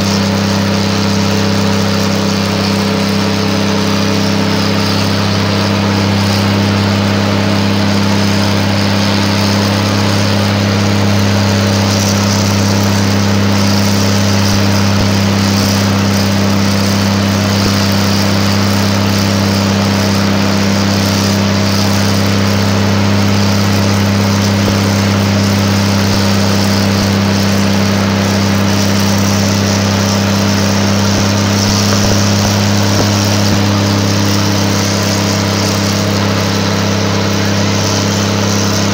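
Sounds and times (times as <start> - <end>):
diesel locomotive engine droning: 0.0 - 38.9.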